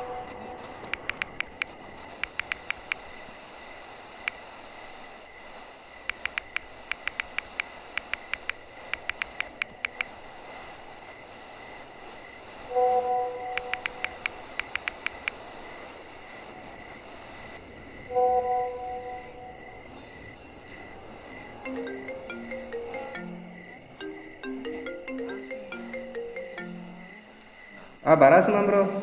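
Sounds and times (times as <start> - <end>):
phone keyboard tap clicks: 0.9 - 3.0, 6.1 - 10.1, 13.6 - 15.4
phone message chime: 21.7 - 27.2.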